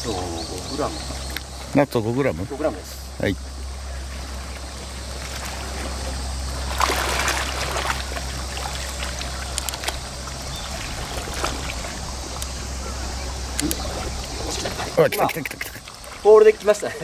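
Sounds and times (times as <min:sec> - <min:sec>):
waves lapping against rocks: 0:04.0 - 0:17.0.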